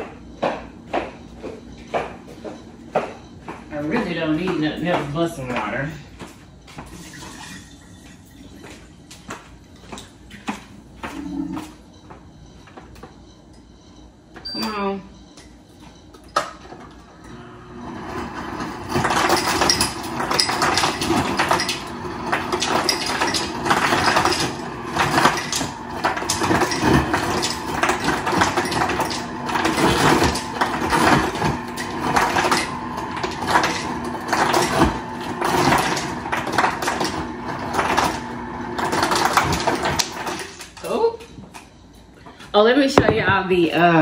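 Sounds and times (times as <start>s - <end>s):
motor hum: 16.8s - 40.6s.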